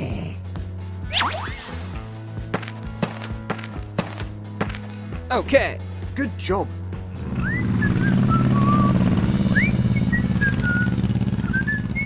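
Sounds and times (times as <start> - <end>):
high whistled notes: 7.3 - 12.0.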